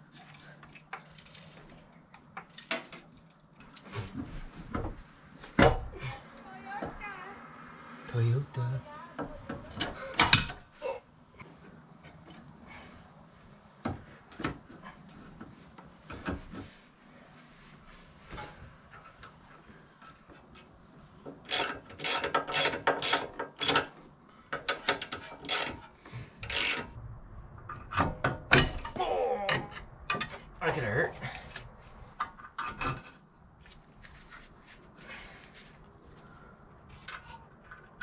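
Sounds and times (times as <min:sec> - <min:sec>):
hand tools clicking on metal: 0:21.4 - 0:26.9.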